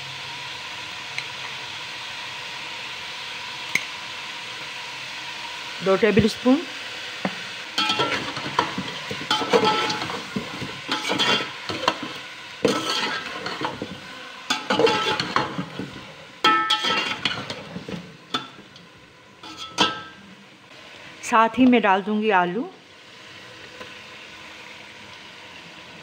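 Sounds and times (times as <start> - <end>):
chicken sizzling in oil: 0.0 - 26.0
spatula scraping metal pot: 7.8 - 15.8, 16.5 - 17.9, 19.4 - 20.1.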